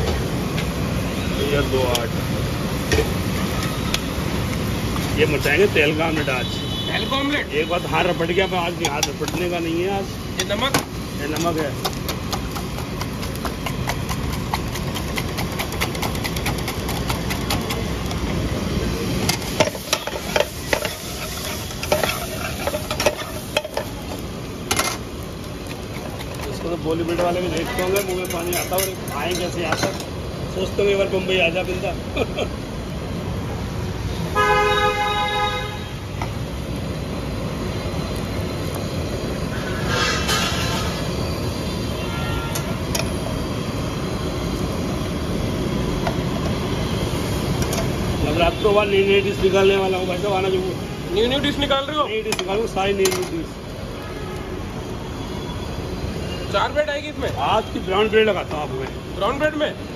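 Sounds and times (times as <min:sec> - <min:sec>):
road traffic rumble: 0:00.0 - 0:59.9
vehicle horn: 0:06.2 - 0:07.8, 0:34.3 - 0:36.0, 0:41.9 - 0:42.8, 0:54.0 - 0:54.6
spatula scraping frying pan: 0:11.4 - 0:18.2, 0:19.2 - 0:24.1
whisk beating eggs in metal mug: 0:12.2 - 0:17.8.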